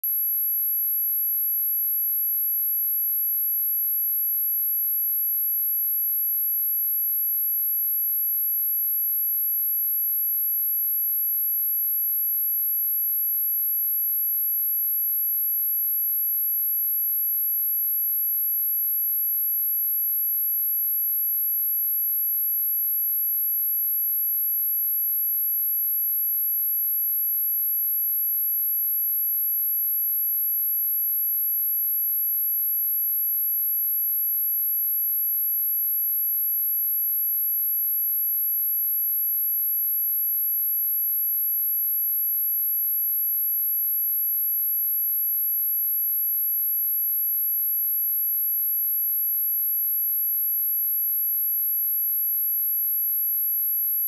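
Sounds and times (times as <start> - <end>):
high-pitched sine-wave test tone: 0.0 - 7.9.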